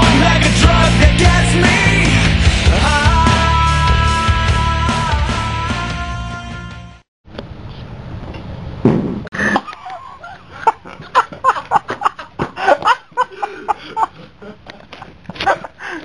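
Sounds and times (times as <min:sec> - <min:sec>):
music: 0:00.0 - 0:07.0.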